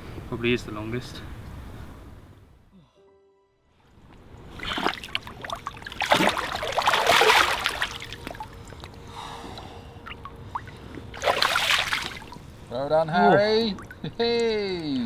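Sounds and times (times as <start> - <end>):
water splashing: 4.4 - 9.1, 10.0 - 15.0
water dripping from hand: 5.0 - 12.4, 13.6 - 15.0.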